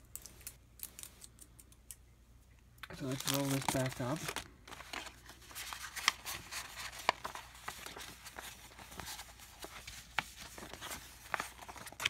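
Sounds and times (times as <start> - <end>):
paper rustling and crackling: 2.9 - 12.0.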